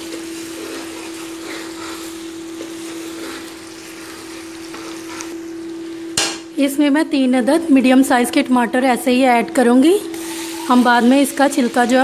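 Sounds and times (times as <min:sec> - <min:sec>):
food sizzling in hot oil: 0:00.0 - 0:06.6, 0:10.1 - 0:12.0.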